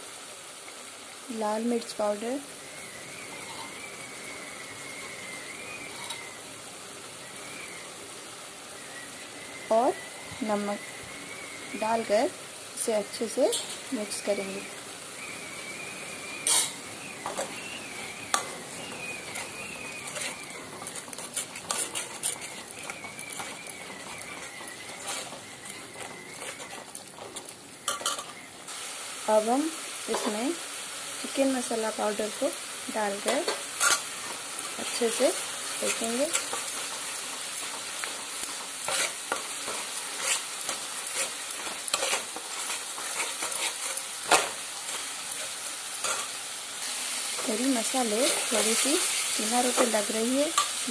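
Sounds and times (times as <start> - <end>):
steady sizzle: 0.0 - 50.9
metal spatula scraping metal pan: 16.4 - 17.7, 18.4 - 28.4, 32.4 - 46.4, 47.4 - 50.9.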